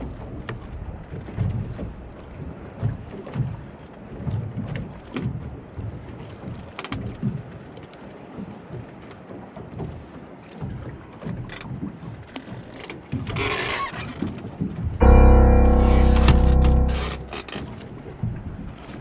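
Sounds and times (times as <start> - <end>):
water slapping boat hull: 0.0 - 15.0.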